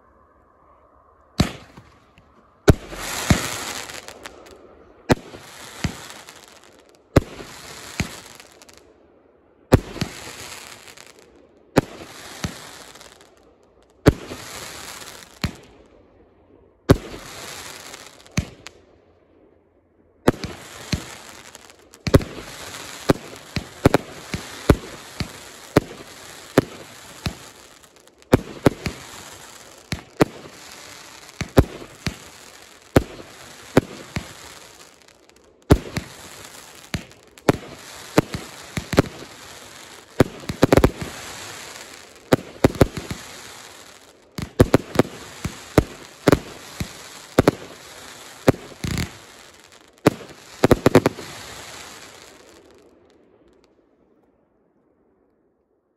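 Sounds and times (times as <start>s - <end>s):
firework shots banging: 1.4s - 2.0s, 20.3s - 34.9s, 35.7s - 39.5s, 40.2s - 43.5s, 44.4s - 47.8s, 48.4s - 49.4s
firework hiss: 1.4s - 8.8s, 9.7s - 13.4s, 14.1s - 15.6s, 17.0s - 18.7s, 20.4s - 52.7s.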